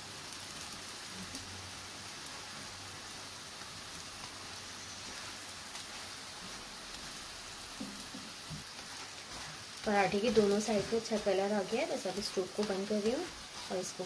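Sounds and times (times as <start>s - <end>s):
oil sizzling in a pan: 0.0s - 14.0s
faint crackles: 3.6s - 14.0s.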